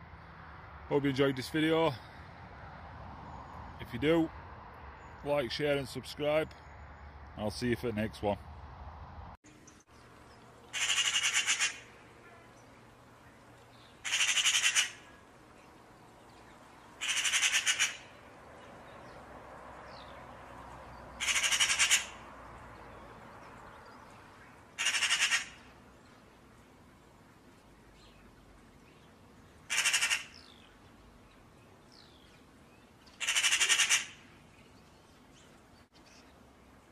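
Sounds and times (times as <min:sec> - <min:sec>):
bird calling with rattling notes: 0:09.6 - 0:19.2, 0:19.9 - 0:22.2, 0:22.9 - 0:26.2, 0:28.0 - 0:36.3.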